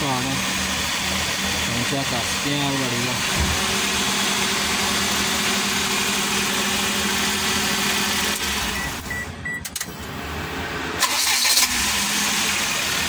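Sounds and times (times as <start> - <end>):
car engine idling: 0.0 - 9.9.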